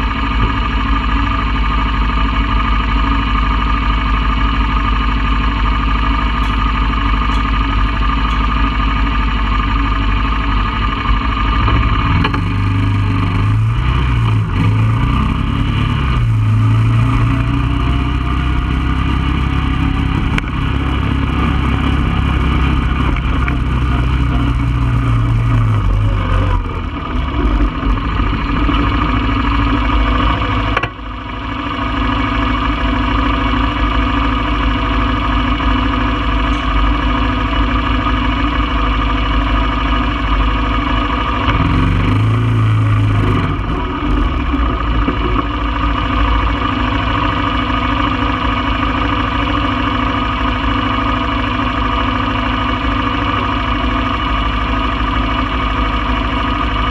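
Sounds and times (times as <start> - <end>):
four-wheeler engine running: 0.0 - 56.9.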